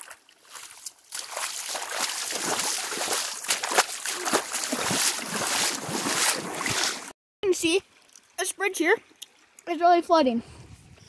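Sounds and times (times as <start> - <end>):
creek water rushing: 0.0 - 7.1
water splashing: 0.0 - 9.7.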